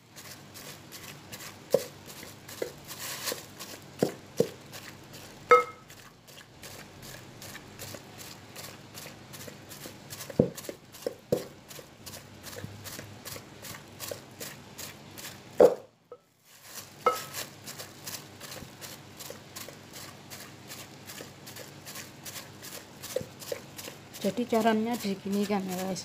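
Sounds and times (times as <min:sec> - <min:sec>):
rice pounding thuds: 0:01.4 - 0:06.0, 0:09.4 - 0:15.9, 0:16.8 - 0:26.0.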